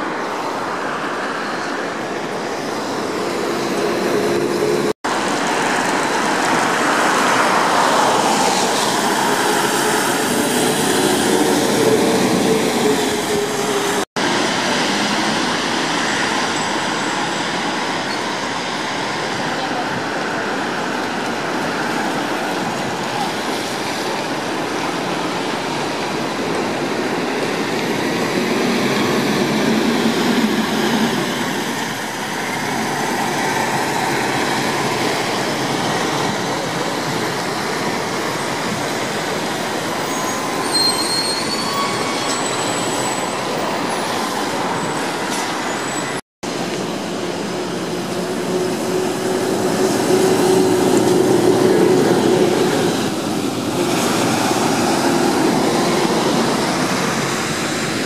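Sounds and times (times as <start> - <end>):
tyres hissing on wet asphalt: 0.0 - 58.0
brief high squeals: 40.0 - 43.3.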